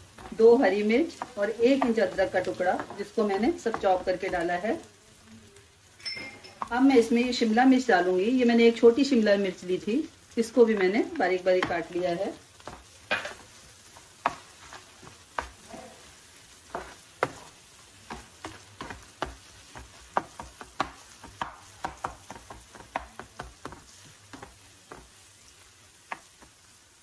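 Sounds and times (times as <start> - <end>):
spatula scraping frying pan: 0.0 - 4.5, 10.7 - 26.7
faint frying sizzle: 0.0 - 27.0.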